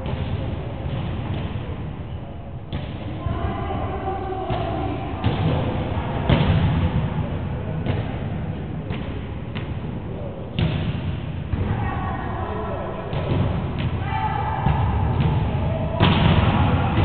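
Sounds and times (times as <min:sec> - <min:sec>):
players' voices: 0:11.5 - 0:17.0.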